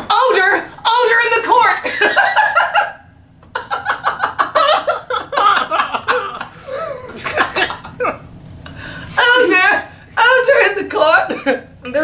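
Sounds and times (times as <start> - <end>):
people laughing: 1.8 - 8.3.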